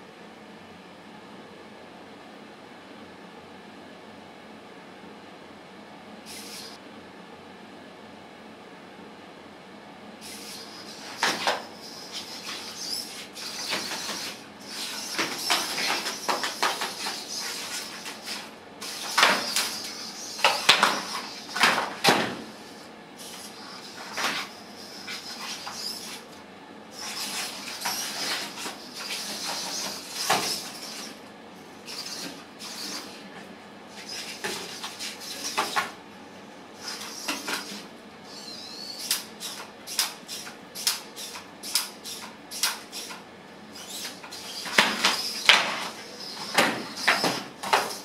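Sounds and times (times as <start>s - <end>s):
servo motors whining: 6.3s - 6.8s, 10.2s - 26.3s.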